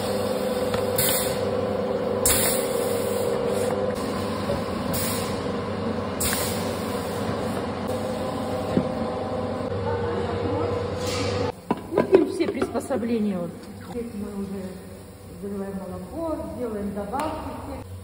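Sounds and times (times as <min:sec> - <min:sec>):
compressed air hissing: 0:00.0 - 0:01.5, 0:02.2 - 0:05.5, 0:06.2 - 0:08.2
packaging machinery humming: 0:00.0 - 0:12.4.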